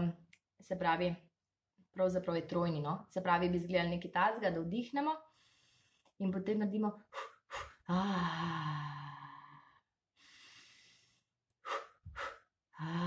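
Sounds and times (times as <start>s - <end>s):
faint breathing: 5.3s - 6.2s, 7.1s - 13.0s
short sharp breaths: 7.1s - 7.8s, 10.2s - 13.0s.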